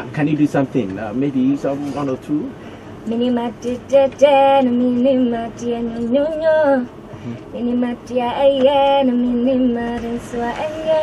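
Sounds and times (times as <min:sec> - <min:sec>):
woman singing unaccompanied: 0:03.0 - 0:06.9, 0:07.5 - 0:11.0.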